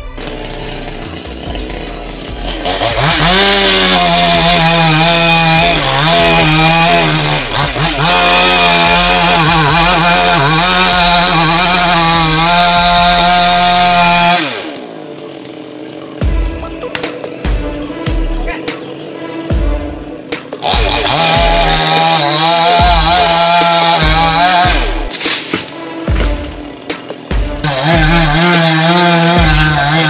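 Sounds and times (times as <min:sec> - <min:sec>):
chainsaw revving and cutting wood: 0:00.0 - 0:30.0.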